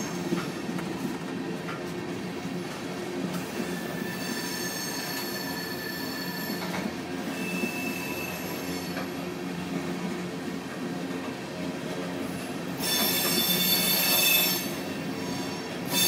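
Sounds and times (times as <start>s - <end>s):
train wheels rumbling on rail: 0.0s - 16.0s
high wheel squeals: 3.6s - 9.2s, 12.8s - 16.0s.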